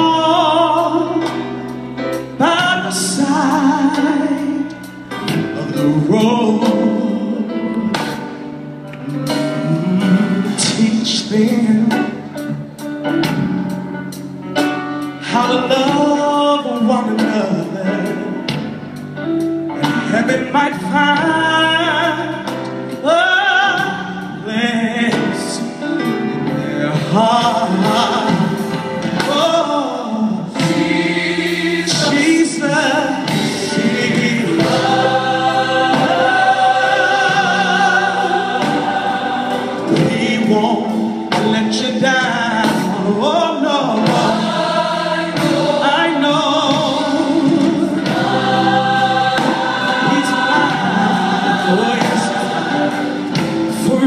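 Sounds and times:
man singing lead: 0.0s - 1.3s, 2.4s - 7.9s, 9.4s - 12.4s, 15.2s - 18.5s, 19.7s - 30.6s, 31.8s - 35.2s, 39.8s - 44.4s, 49.9s - 54.0s
choir singing gospel: 0.0s - 54.0s.

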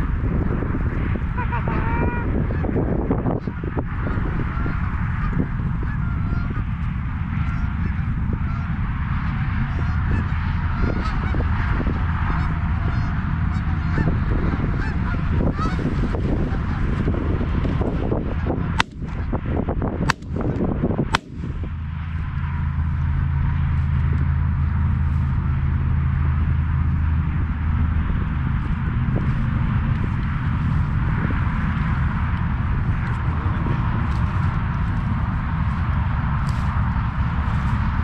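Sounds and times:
geese honking: 1.3s - 6.7s, 7.3s - 17.1s
shotgun shots: 20.1s - 20.6s, 21.2s - 21.6s.

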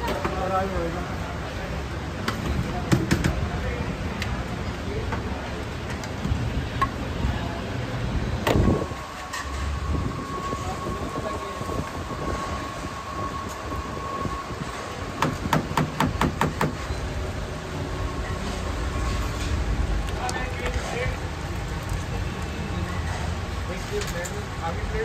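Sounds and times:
sharp knocks: 15.2s - 16.8s.

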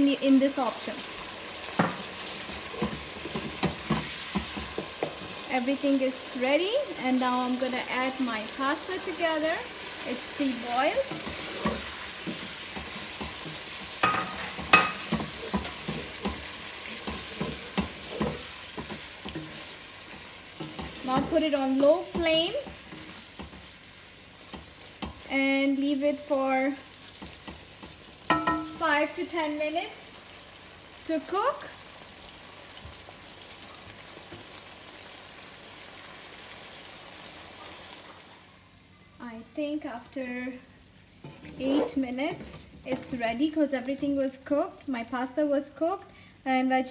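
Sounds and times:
food sizzling: 0.0s - 46.9s
spatula scraping a frying pan: 2.0s - 5.4s, 9.8s - 25.2s, 41.2s - 43.2s.

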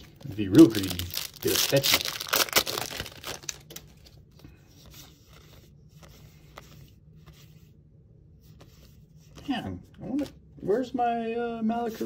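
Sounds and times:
foil wrapper crinkling and tearing: 0.0s - 4.1s.

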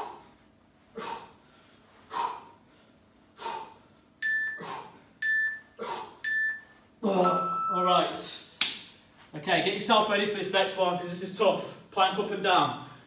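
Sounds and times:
man breathing heavily: 0.0s - 6.2s
short electronic timer beeps: 4.2s - 4.6s, 5.2s - 7.9s.

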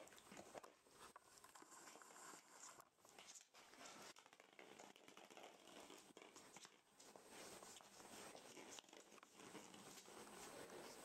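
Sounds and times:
puppies rustling blanket: 5.4s - 11.0s.

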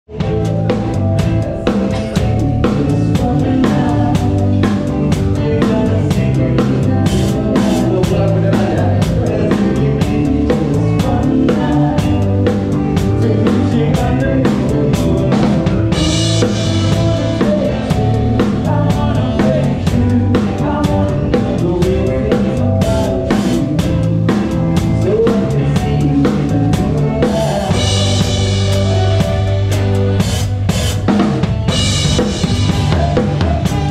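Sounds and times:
drum kit played with sticks: 0.1s - 33.9s
live band music: 0.1s - 33.9s.

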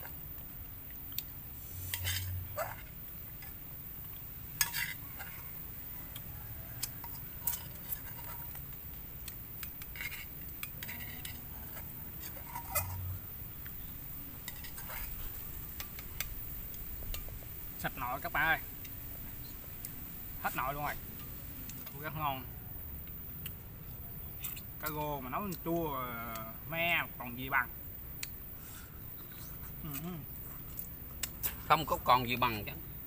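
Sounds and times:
metal spoon scraping pot: 1.8s - 2.5s, 4.6s - 5.4s, 7.0s - 8.6s, 9.6s - 13.2s, 14.4s - 16.3s
chopsticks and bowls clinking: 9.6s - 13.1s.

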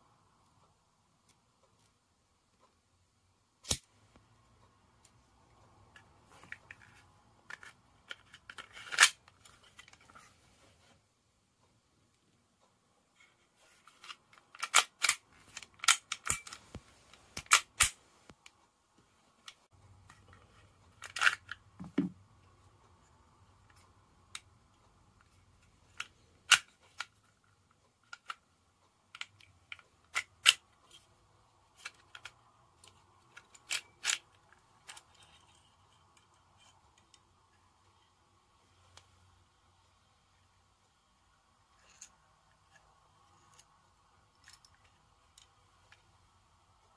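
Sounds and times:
air pistol parts clicking: 13.9s - 18.5s, 21.0s - 21.6s, 25.9s - 27.2s, 29.1s - 30.7s.

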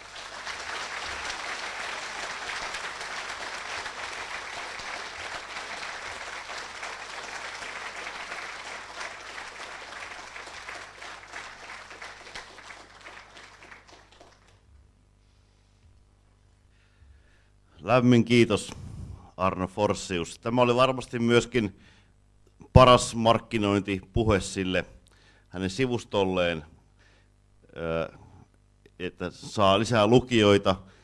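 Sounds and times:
audience applauding: 0.0s - 14.7s.

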